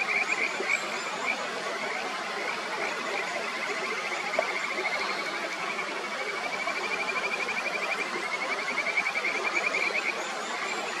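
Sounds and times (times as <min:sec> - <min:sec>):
frogs trilling: 0:00.0 - 0:11.0.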